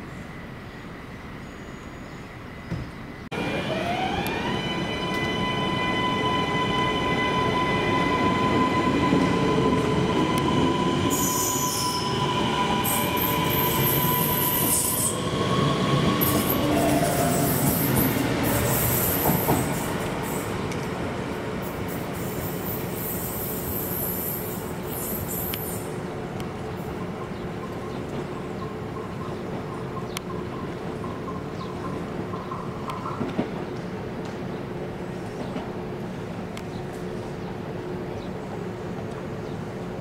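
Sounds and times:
rumble of train wheels: 0:00.0 - 0:40.0
electric train motors whining: 0:03.4 - 0:17.8
high-pitched wheel squeal: 0:03.8 - 0:17.9.

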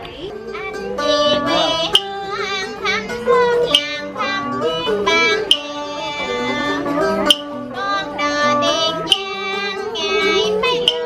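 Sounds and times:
plucked acoustic guitar: 0:00.0 - 0:11.0
plucked lute: 0:00.0 - 0:11.0
woman singing folk song: 0:00.0 - 0:11.0
sharp click on the beat: 0:05.3 - 0:06.0, 0:07.1 - 0:07.7, 0:08.9 - 0:09.6, 0:10.7 - 0:11.0.

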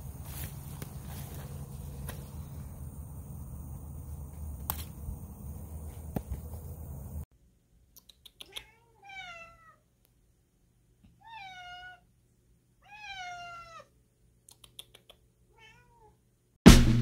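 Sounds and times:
cats meowing: 0:08.4 - 0:09.8, 0:11.1 - 0:12.1, 0:12.8 - 0:13.9
loud music: 0:16.7 - 0:17.0.

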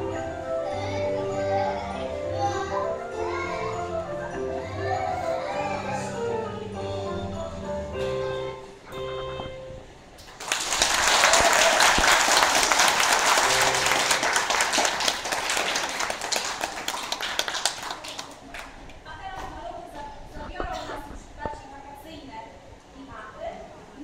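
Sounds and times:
audience applauding: 0:10.3 - 0:18.8.

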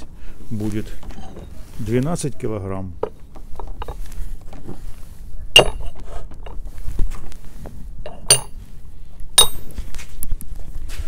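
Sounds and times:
metal weight plates clinking: 0:05.6 - 0:06.0, 0:08.1 - 0:08.6, 0:09.4 - 0:09.7.

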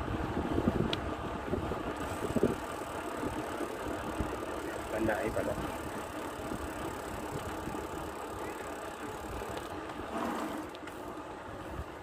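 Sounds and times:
wind on microphone: 0:00.0 - 0:04.4
bicycle tyres rolling: 0:00.0 - 0:12.0.

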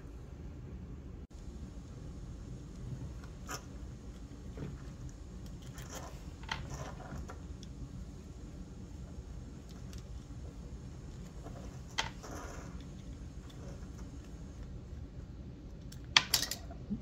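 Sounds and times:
steady low hum: 0:00.0 - 0:17.0
small metal parts handled: 0:16.2 - 0:16.7.

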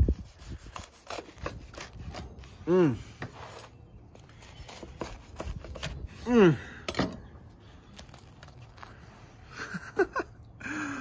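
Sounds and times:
knife sawing through crispy bread: 0:00.0 - 0:06.5
bread crunching pulled apart: 0:07.5 - 0:09.4.

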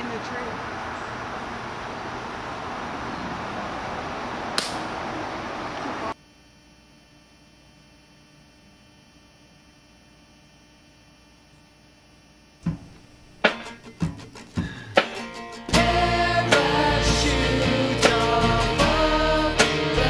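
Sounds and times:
faint electrical hum: 0:00.0 - 0:15.7.

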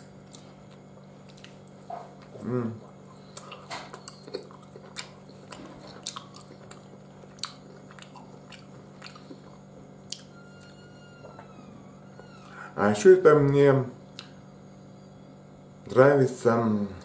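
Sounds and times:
wet chewing mouth clicks: 0:00.3 - 0:10.3.

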